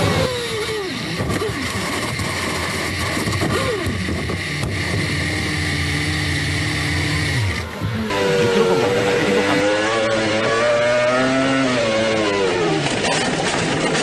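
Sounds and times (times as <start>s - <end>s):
engine running low and steady: 0.0s - 14.0s
racing car engine revs falling: 3.4s - 13.8s.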